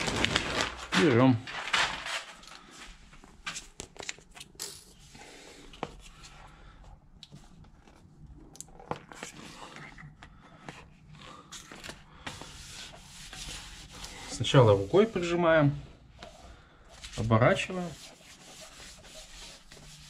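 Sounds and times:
sheet rustling and crinkling: 0.0 - 3.8.

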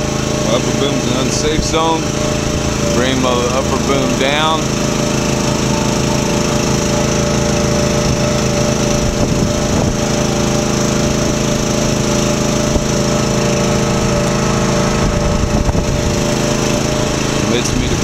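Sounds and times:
small gasoline engine running: 0.0 - 18.0.

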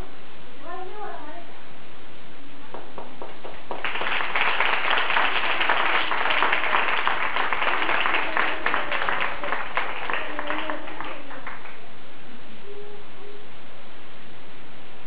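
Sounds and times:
children clapping: 2.8 - 11.8
voices: 5.0 - 11.9, 12.6 - 13.8.

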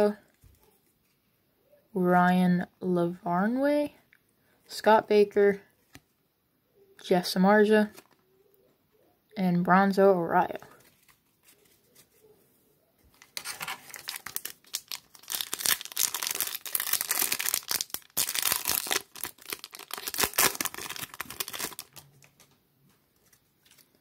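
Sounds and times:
foil wrapper tearing and crinkling: 13.2 - 22.4.

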